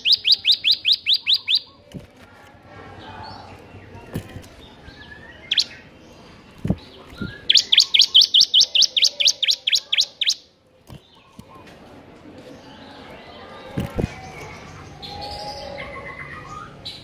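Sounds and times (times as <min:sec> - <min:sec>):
bird singing high chirps: 0:00.0 - 0:01.9, 0:04.2 - 0:10.5.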